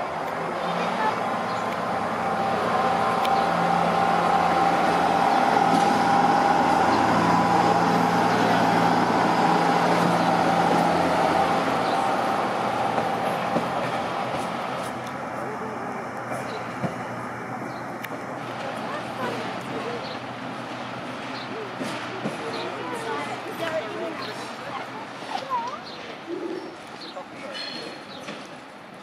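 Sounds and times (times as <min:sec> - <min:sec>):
diesel railcar engine droning: 0:00.0 - 0:29.0.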